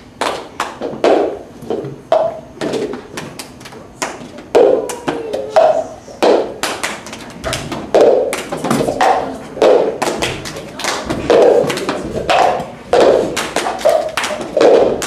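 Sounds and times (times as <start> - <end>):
plastic cups tapped on floor: 0.2 - 3.4, 4.0 - 15.0
hand claps: 3.4 - 15.0.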